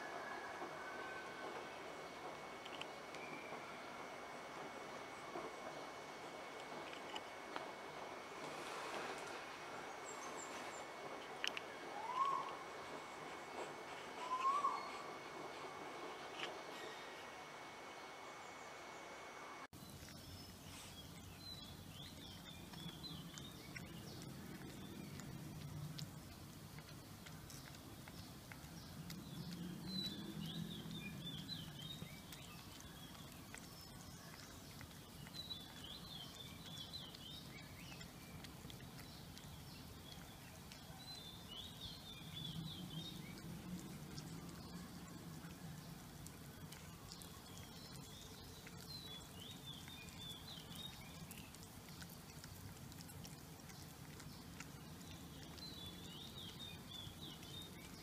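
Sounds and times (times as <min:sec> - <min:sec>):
cats licking and smacking: 0:01.4 - 0:03.4, 0:04.0 - 0:11.9, 0:19.7 - 0:58.0
bird twittering: 0:12.0 - 0:12.6, 0:14.2 - 0:15.1.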